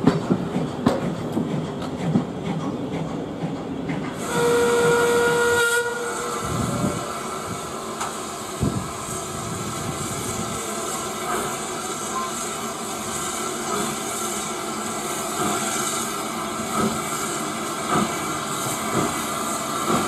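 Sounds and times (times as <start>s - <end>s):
train clanking: 0.0s - 20.0s
steam hissing: 4.1s - 20.0s
steam whistle blast: 4.2s - 7.6s.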